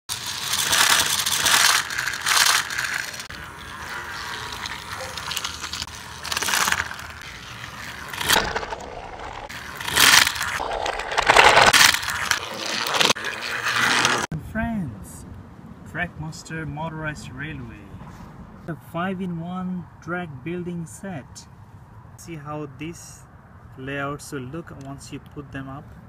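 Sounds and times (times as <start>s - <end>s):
toy train motor whirring: 0.1s - 14.3s
toy train wheels rattling: 0.1s - 14.3s.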